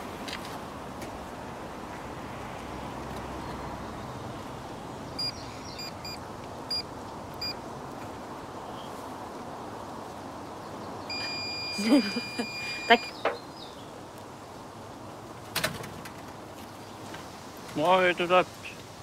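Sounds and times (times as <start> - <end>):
distant traffic hum: 0.0 - 19.0
smartphone key beeps: 5.2 - 6.8, 11.1 - 13.2.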